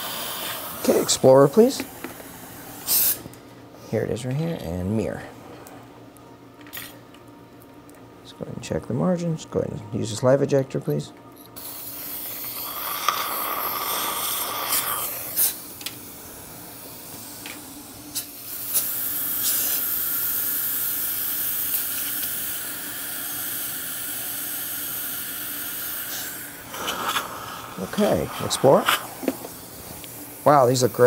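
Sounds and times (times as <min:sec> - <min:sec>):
dental suction hissing: 0:00.0 - 0:03.2, 0:11.6 - 0:31.0.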